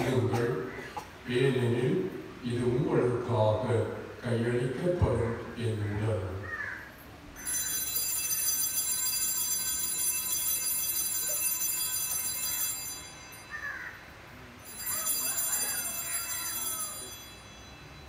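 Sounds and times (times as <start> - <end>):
altar bells ringing: 7.4 - 18.0.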